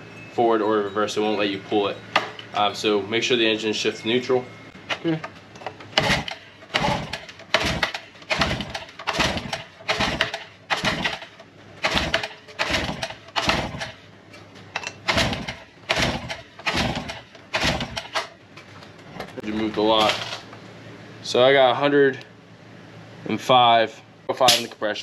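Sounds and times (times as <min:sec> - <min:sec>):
outboard pull-starter rattling whir: 0:05.9 - 0:14.0, 0:15.0 - 0:18.3.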